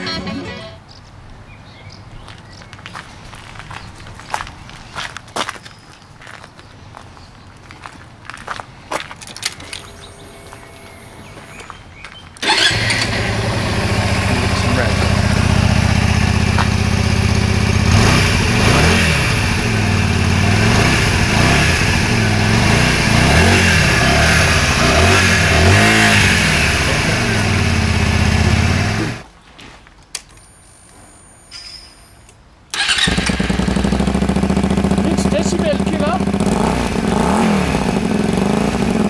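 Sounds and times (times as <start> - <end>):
motorcycle engine idling and revving: 12.4 - 29.2, 32.8 - 39.0.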